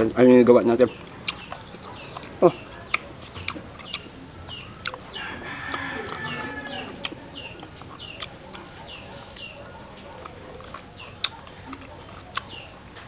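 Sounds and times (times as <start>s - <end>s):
rooster crowing: 5.1s - 7.4s.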